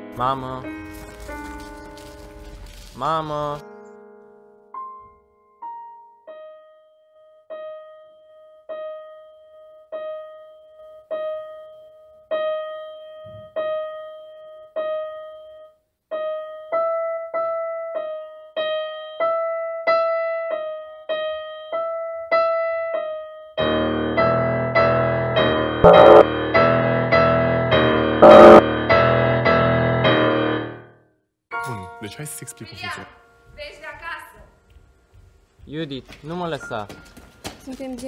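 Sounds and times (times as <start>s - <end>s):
piano note repeated: 23.6s - 30.8s.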